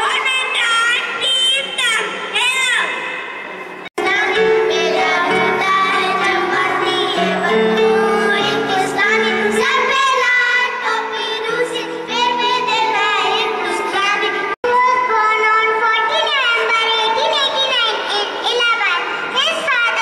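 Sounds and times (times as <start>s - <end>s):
backing music with long chords: 4.0s - 14.5s
children singing: 4.0s - 14.6s.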